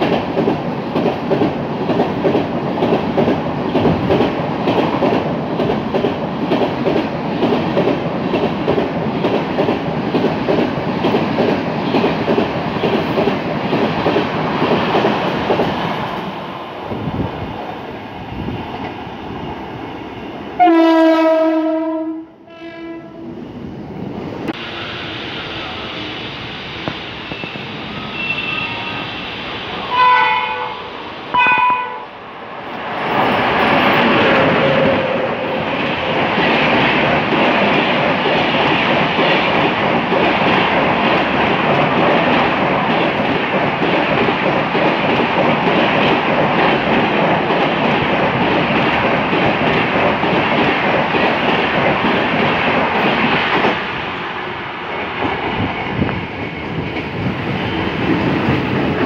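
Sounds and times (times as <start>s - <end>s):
train coaches rushing past: 0.0s - 59.0s
train horn blasts: 20.6s - 23.4s, 29.9s - 32.1s.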